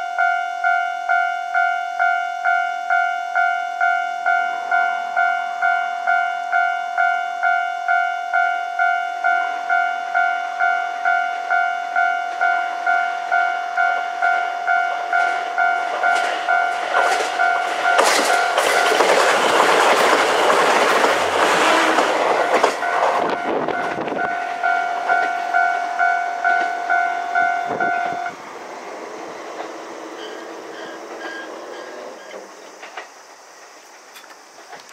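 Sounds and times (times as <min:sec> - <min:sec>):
level-crossing bell dinging: 0:00.0 - 0:19.1, 0:22.4 - 0:28.3
diesel train passing: 0:00.6 - 0:34.9
wheels clicking over rail joints: 0:13.3 - 0:34.9.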